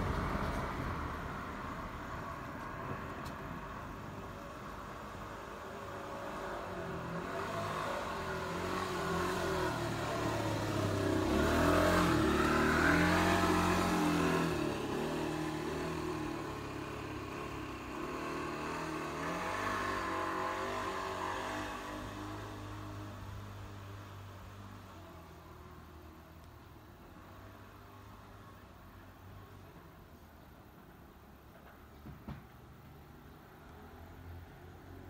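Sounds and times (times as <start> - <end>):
vehicle engine passing by: 5.7 - 24.0.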